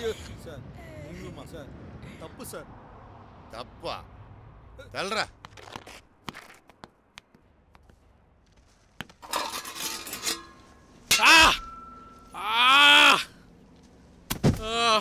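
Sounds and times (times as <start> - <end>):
person crying out: 12.4 - 13.3, 14.6 - 15.0.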